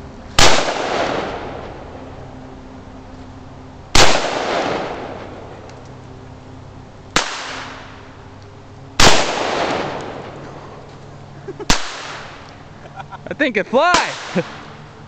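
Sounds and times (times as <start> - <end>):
rifle shots with echo: 0.4 - 1.6, 4.0 - 5.4, 7.2 - 8.0, 9.0 - 10.4, 11.7 - 12.5, 13.9 - 14.7.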